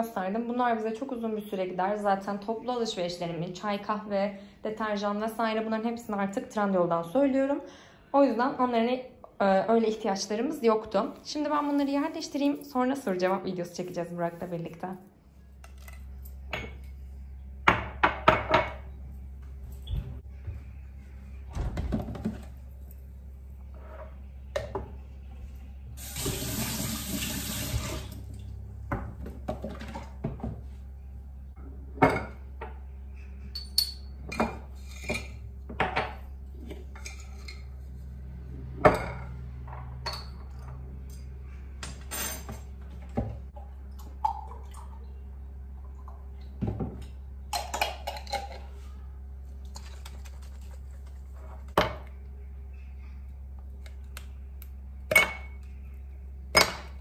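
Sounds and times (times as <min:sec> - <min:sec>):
glasses and jar clinking: 0:33.5 - 0:35.4.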